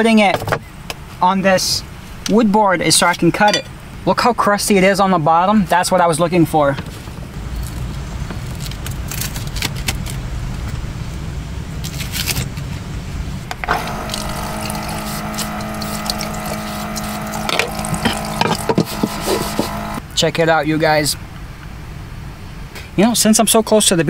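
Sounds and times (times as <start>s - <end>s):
low rumble: 7.0s - 19.6s
water pump motor hum: 13.4s - 20.0s
water running into metal sink: 13.8s - 20.0s.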